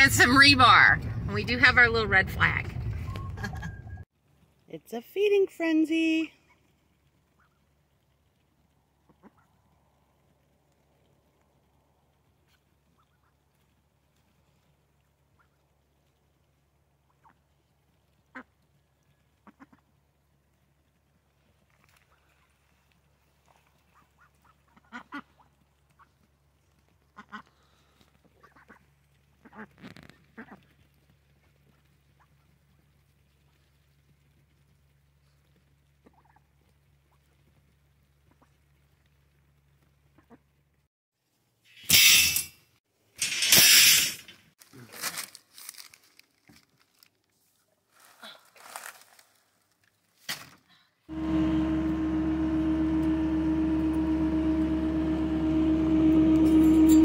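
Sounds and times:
paper bags rustling: 44.6s - 47.2s
track loader diesel engine: 51.1s - 57.0s.

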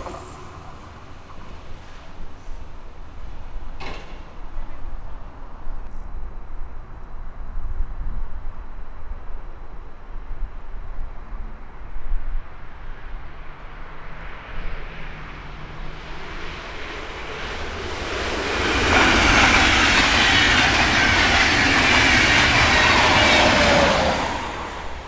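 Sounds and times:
faint high whine: 4.8s - 18.1s
train wheels rushing on rails: 14.2s - 25.0s.

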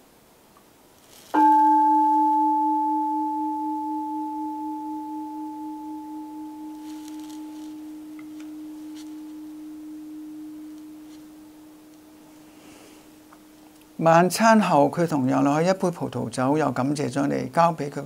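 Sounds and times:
altar bell ringing: 1.4s - 13.8s.

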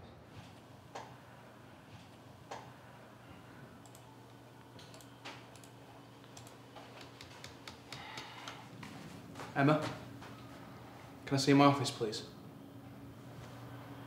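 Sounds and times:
low room hum: 0.0s - 14.0s
computer keyboard typing: 4.8s - 5.7s, 6.3s - 8.6s.

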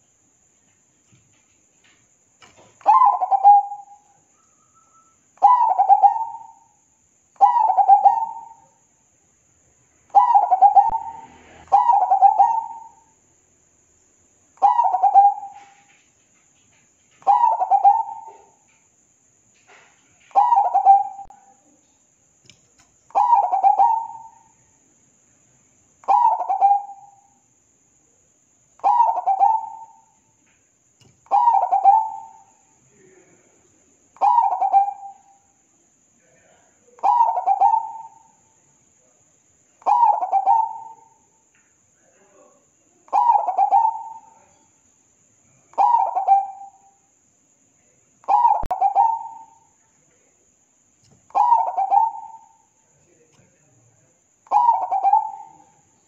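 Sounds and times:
dove cooing: 2.8s - 4.0s, 5.4s - 6.6s, 7.4s - 8.6s, 10.1s - 13.0s, 14.6s - 15.9s, 17.2s - 18.6s, 20.3s - 21.4s, 23.1s - 24.4s, 26.0s - 27.2s, 28.8s - 30.1s, 31.1s - 32.5s, 34.2s - 35.3s, 37.0s - 38.2s, 39.8s - 41.2s, 43.1s - 44.6s, 45.8s - 46.8s, 48.3s - 49.6s, 51.3s - 52.6s, 54.5s - 55.8s.

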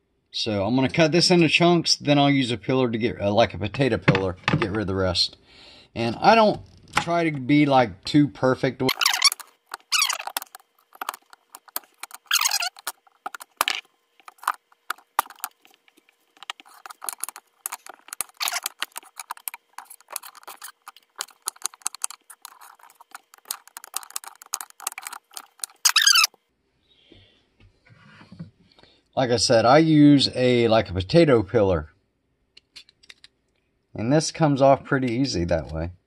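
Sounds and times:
knife scraping slices: 8.9s - 15.6s, 16.4s - 26.3s.

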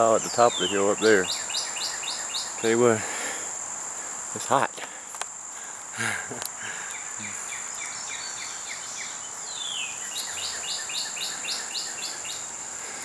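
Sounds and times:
bird singing: 0.0s - 3.2s, 6.6s - 13.0s
high-pitched insect buzz: 3.5s - 13.0s.

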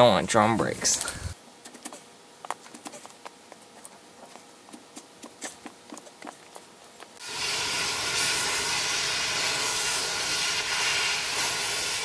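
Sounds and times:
cutting tool hissing through steel: 7.2s - 12.0s.

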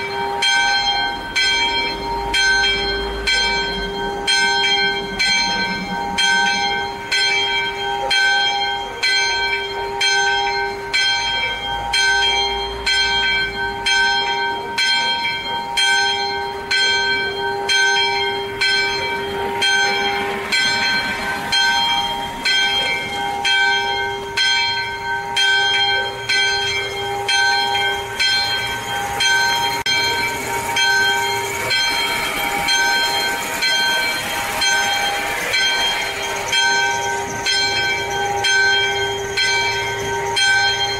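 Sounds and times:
swinging church bell ringing: 0.0s - 40.9s
rushing noise: 26.6s - 40.9s.

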